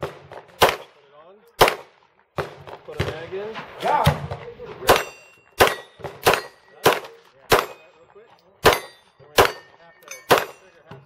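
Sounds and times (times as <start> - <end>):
handgun shots: 4.9 - 7.8, 8.6 - 9.7.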